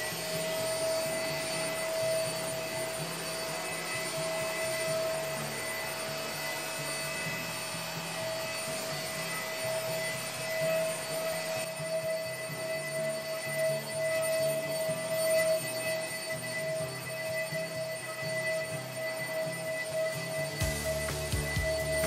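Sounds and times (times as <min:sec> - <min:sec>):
stick vacuum running on carpet: 0:00.0 - 0:22.0.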